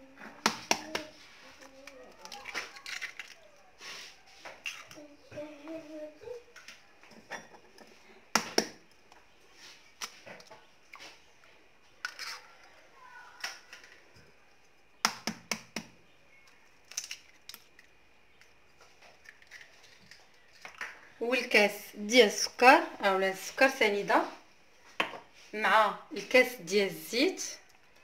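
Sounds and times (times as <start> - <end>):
eggshells cracking: 1.8 - 3.5, 15.0 - 21.0.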